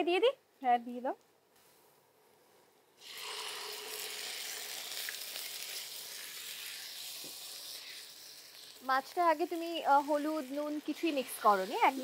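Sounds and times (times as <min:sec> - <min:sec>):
fish sizzling in hot oil: 0:03.0 - 0:12.0.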